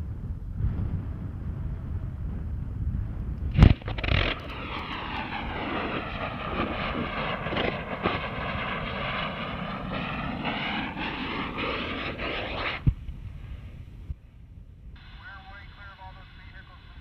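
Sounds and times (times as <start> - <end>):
crackling pops: 3.4 - 13.2
rocket motor roaring: 3.5 - 13.0
sharp crack: 3.5 - 13.0.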